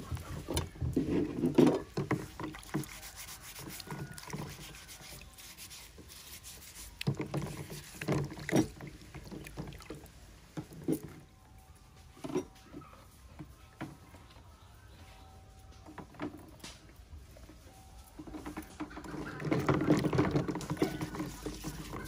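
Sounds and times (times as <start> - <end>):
water splashing in plastic basin: 0.0 - 11.1, 18.9 - 22.0.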